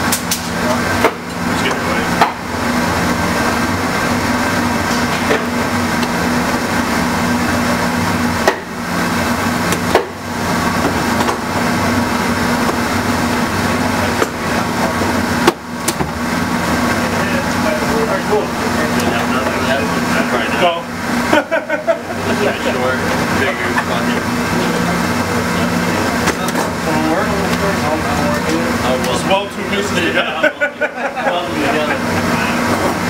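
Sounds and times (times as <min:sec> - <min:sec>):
hot air welder blowers: 0:31.3 - 0:33.0.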